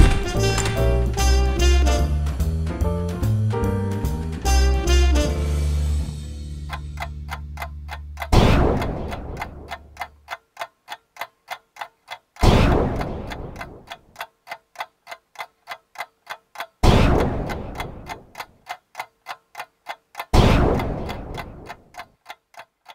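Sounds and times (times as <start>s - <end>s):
steady ticking: 6.0s - 22.9s
loud sudden hit: 8.4s - 9.2s.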